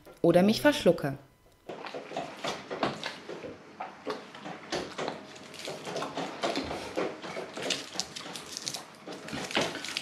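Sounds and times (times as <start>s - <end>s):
foil crinkling: 7.7s - 10.0s.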